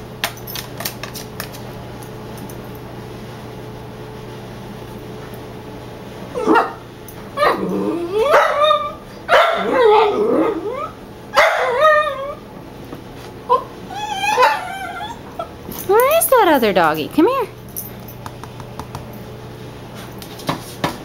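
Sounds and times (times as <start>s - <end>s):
puppy barking and whining: 6.3s - 12.5s, 13.4s - 15.6s.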